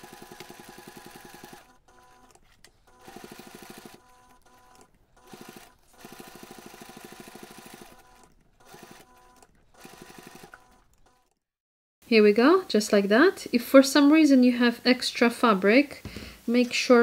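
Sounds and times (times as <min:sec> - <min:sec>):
sewing machine stitching: 0:00.0 - 0:11.5.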